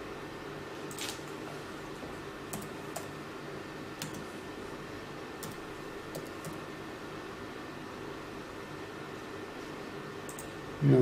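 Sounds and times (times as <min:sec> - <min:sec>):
faint steady hum: 0:00.0 - 0:11.0
laptop keystrokes: 0:02.5 - 0:03.1, 0:04.0 - 0:04.3, 0:05.4 - 0:06.6.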